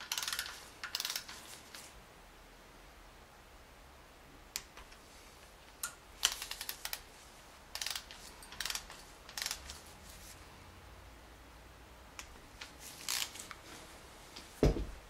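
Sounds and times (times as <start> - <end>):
hand ratchet clicking: 0.0 - 1.4, 7.7 - 9.8.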